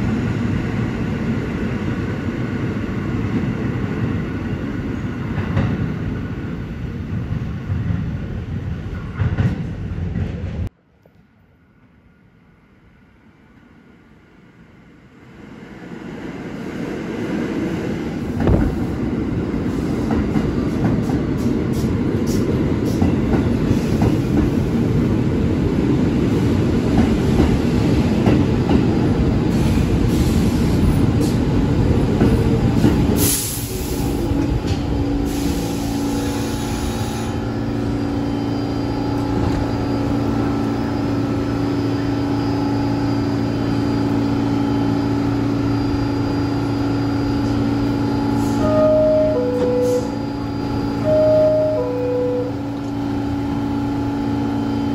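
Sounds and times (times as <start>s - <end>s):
subway train rumbling on rails: 0.0s - 54.9s
stopped train humming: 11.6s - 54.9s.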